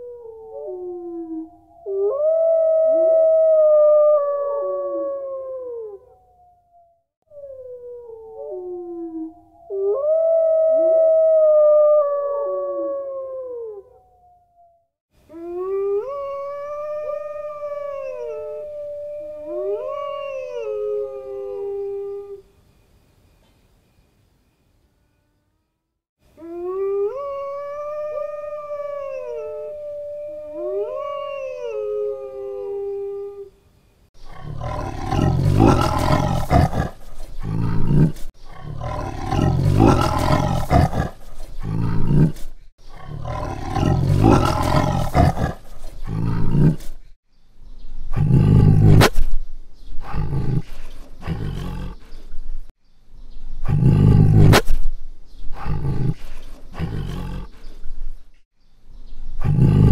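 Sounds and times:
wolf howling: 0.0 - 22.5, 26.4 - 33.5, 34.3 - 42.4
tiger roaring and growling: 34.2 - 47.0, 48.1 - 49.3, 50.0 - 52.0, 53.6 - 54.8, 55.5 - 57.8, 59.4 - 59.9.

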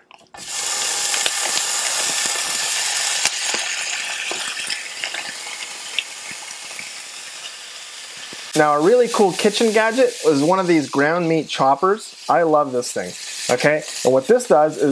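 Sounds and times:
crackles and pops: 0.0 - 8.6
meat sizzling in a skillet: 0.4 - 14.9.

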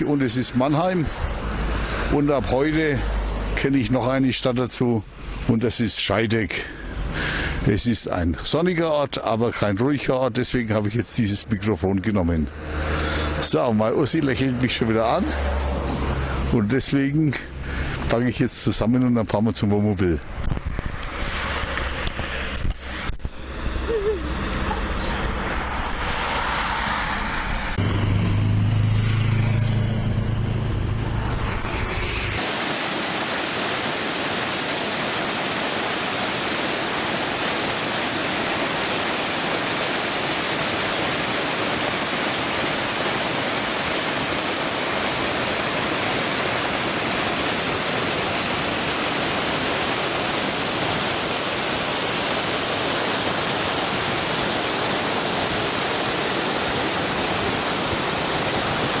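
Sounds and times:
waterfall rushing: 32.4 - 59.0.

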